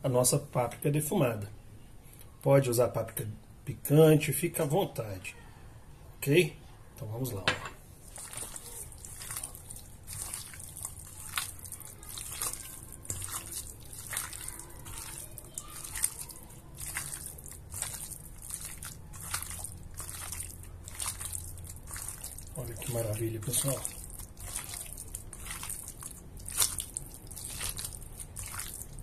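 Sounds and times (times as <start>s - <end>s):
wet squelching of raw chicken: 8.0s - 29.0s.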